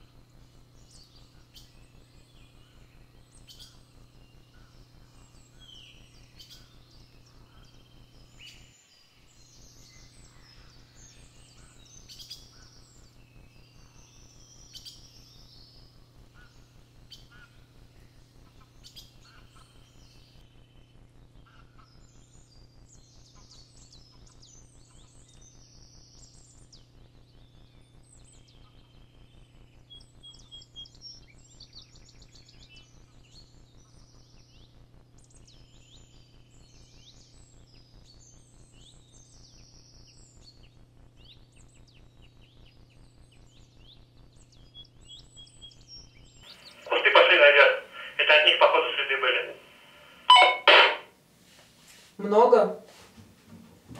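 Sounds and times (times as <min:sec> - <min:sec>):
small birds chirping: 0:00.0 - 0:50.3
faint low hum: 0:46.4 - 0:51.2.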